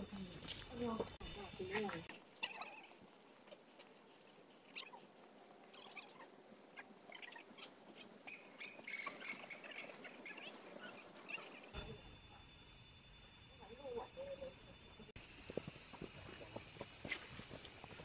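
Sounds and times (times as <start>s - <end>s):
small birds chirping: 1.9s - 11.8s.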